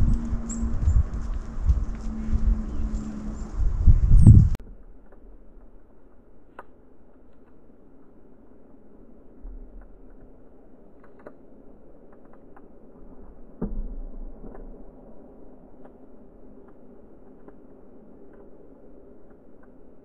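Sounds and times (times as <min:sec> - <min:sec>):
birds pecking seeds: 0:00.0 - 0:03.7.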